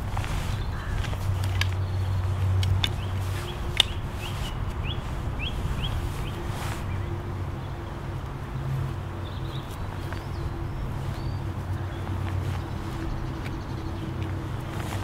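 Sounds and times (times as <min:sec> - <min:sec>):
fishing tackle clicks and knocks: 0:00.0 - 0:04.4
bird chirping: 0:00.0 - 0:08.0, 0:09.0 - 0:15.0
wind rumbling on microphone: 0:00.0 - 0:15.0.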